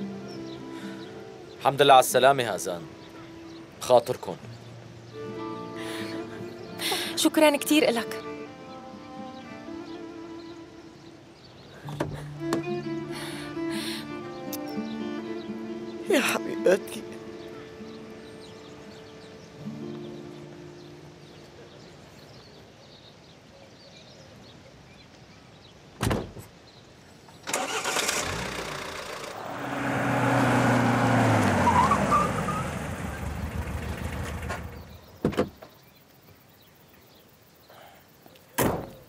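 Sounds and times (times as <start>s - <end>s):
car door thumps: 26.0s - 26.5s, 35.2s - 35.7s, 38.6s - 39.0s
pickup truck engine slowing: 27.5s - 35.2s.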